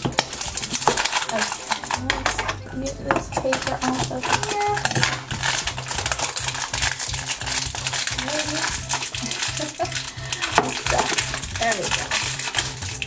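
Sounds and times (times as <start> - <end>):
background music with beat: 0.0 - 13.0
plastic wrapping crinkling: 0.0 - 13.0.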